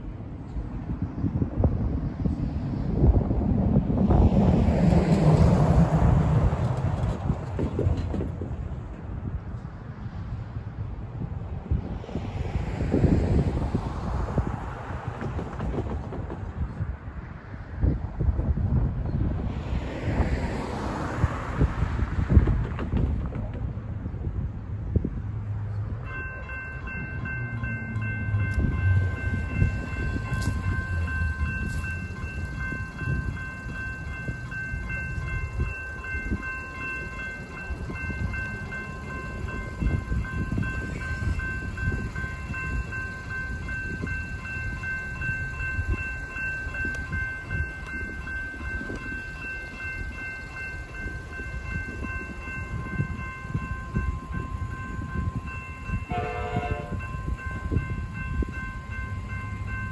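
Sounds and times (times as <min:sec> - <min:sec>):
crossing warning bells ringing: 0:25.7 - 0:59.9.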